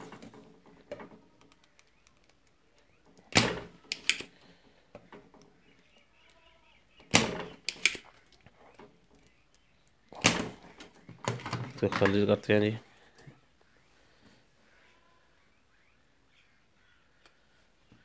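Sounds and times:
solder sucker snapping: 7.1 - 8.0.

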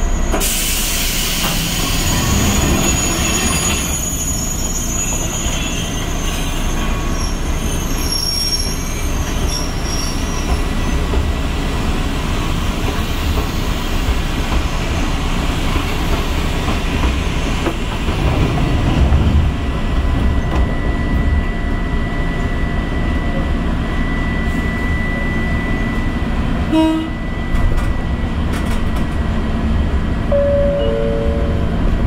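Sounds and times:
train wheels rumbling on rail: 0.0 - 32.0
two-note falling chime: 30.3 - 31.7.

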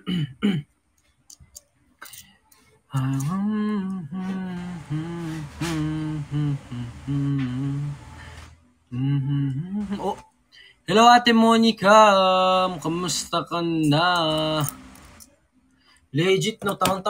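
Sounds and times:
man humming a tune: 2.9 - 8.3, 8.9 - 10.2.

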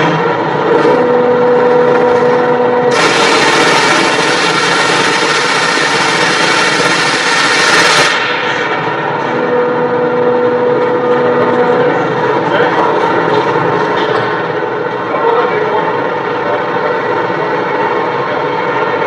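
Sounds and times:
machine hum: 0.0 - 19.0
forging press hissing: 2.9 - 8.2.

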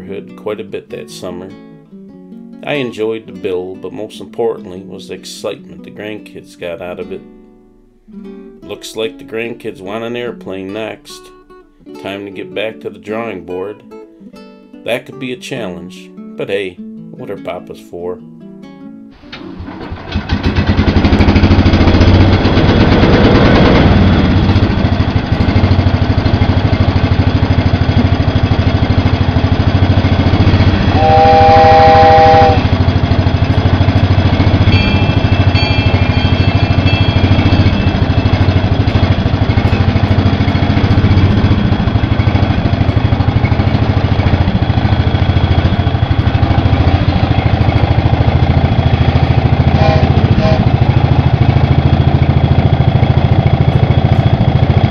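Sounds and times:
lawn tractor engine running: 19.1 - 54.9
train whistle chord: 19.3 - 54.9
small bell ringing: 34.6 - 39.0.

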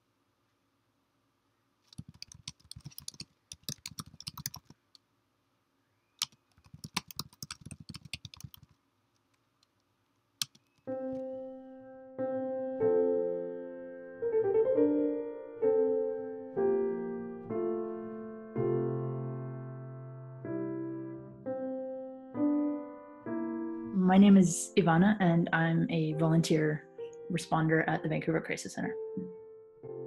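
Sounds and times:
computer keyboard typing: 1.9 - 4.8, 6.2 - 8.8, 10.4 - 10.9
piano playing slow chords: 10.9 - 30.0.

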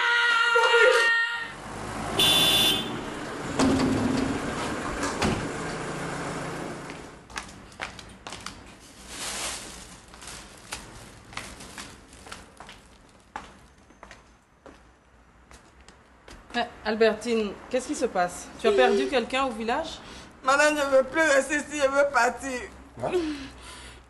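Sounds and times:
door: 5.0 - 5.6
light irregular footsteps: 6.8 - 16.6.

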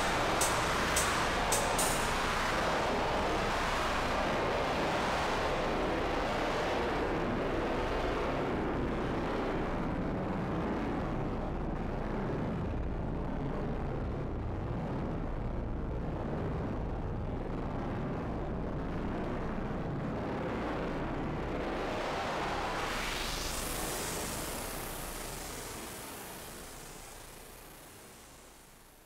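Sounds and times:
rumbling drone with hiss: 0.0 - 6.5, 19.4 - 29.0.

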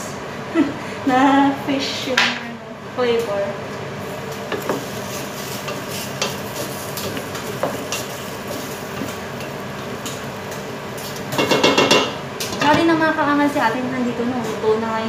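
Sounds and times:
vegetables hissing in pot: 4.0 - 10.3
clatter of pot and utensils: 11.0 - 12.8.

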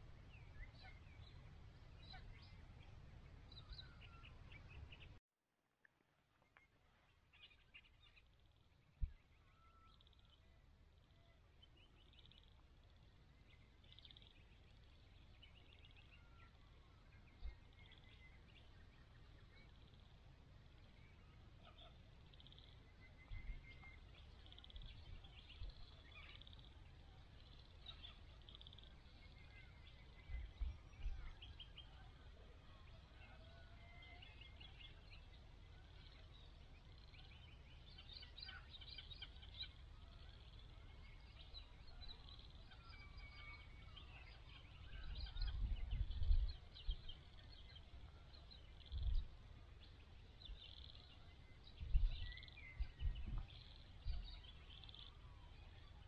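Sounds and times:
wild birds chirping: 0.0 - 5.2, 6.4 - 56.0
wind gusts on microphone: 44.9 - 47.1, 51.7 - 54.4.

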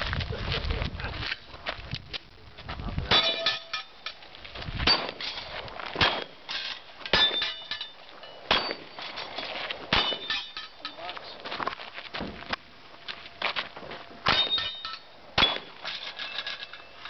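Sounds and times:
steel plates ringing ding: 3.1 - 4.2, 6.5 - 11.1, 14.3 - 17.0
pistol shots: 6.0 - 6.4, 9.9 - 10.4, 15.4 - 15.8.

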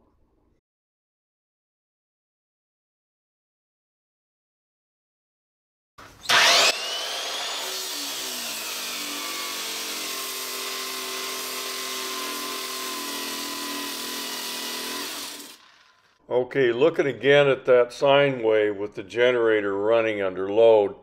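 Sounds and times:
portable generator running: 6.3 - 12.1.

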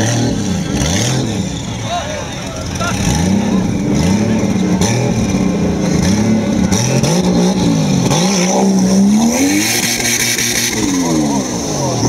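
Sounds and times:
buggy engine revving: 0.0 - 12.0
tyres churning in mud: 0.0 - 12.0.

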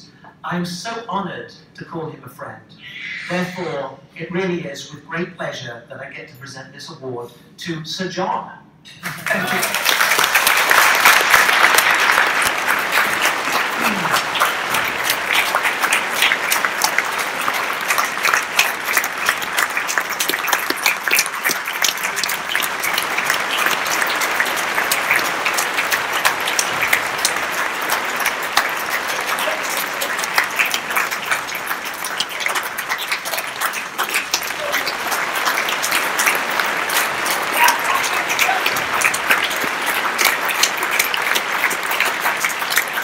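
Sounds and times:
audience applause: 9.0 - 43.0.

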